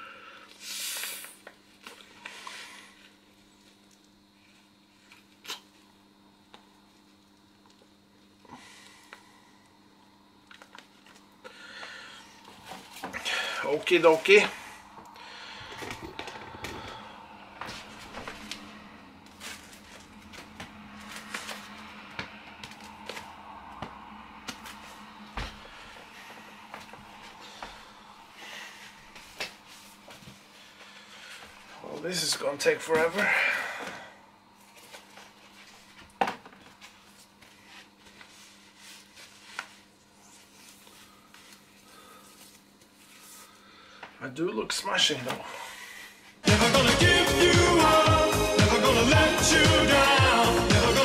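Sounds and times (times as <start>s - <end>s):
faint steady hum: 0.0s - 51.0s
rustling of inflatable vinyl: 17.6s - 23.4s.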